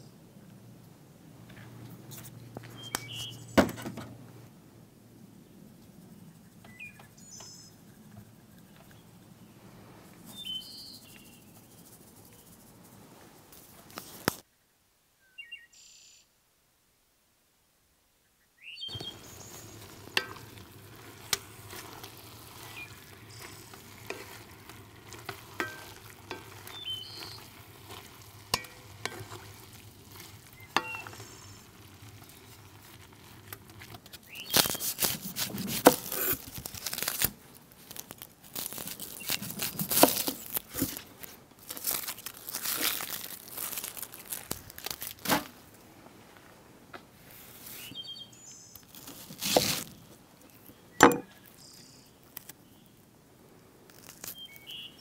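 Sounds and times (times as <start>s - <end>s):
utensil scraping pot: 18.9s - 37.0s
meat sizzling in pot: 18.9s - 37.2s.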